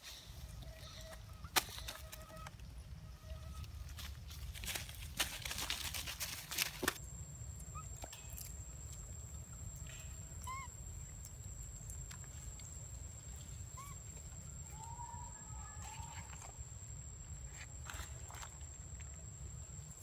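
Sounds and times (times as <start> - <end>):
footsteps crunching in dry leaves: 3.8 - 7.0
short chirping animal calls: 9.9 - 11.2, 13.4 - 16.1
wavering animal call: 10.3 - 11.1, 13.6 - 16.5.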